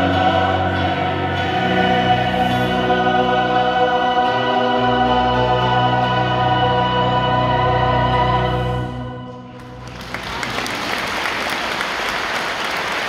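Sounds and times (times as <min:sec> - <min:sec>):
choir singing with accompaniment: 0:00.0 - 0:09.9
audience applause: 0:09.6 - 0:13.0.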